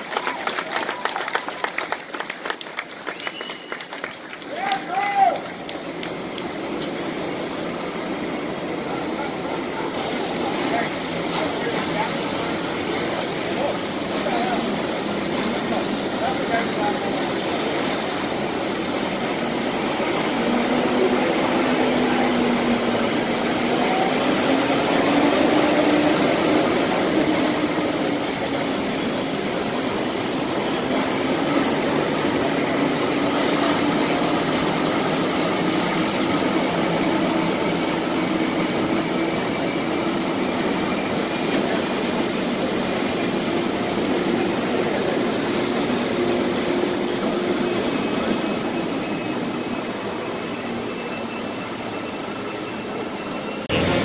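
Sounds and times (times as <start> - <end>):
tractor diesel engines rumbling: 53.6 - 54.0.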